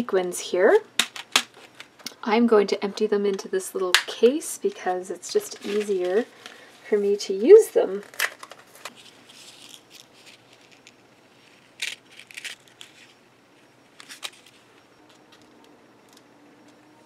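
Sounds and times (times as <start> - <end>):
plastic packet rustling: 5.4 - 7.2, 7.9 - 13.2.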